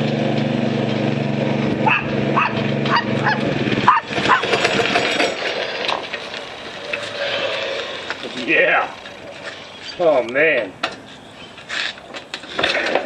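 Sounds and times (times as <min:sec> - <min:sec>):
scooter engine running: 0:00.0 - 0:09.7
dog barking: 0:01.8 - 0:04.5.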